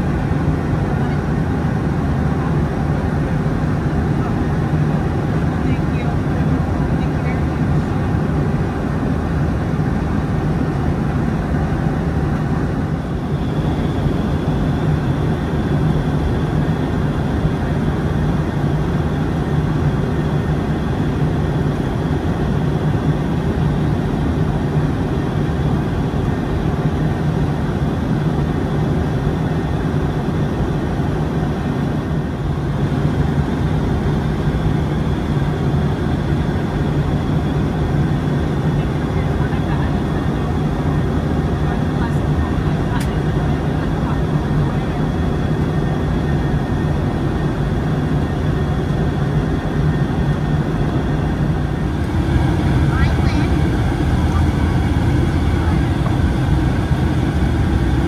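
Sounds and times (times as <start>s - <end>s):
airliner cabin drone: 0.0s - 58.0s
faint high whine: 48.2s - 58.0s.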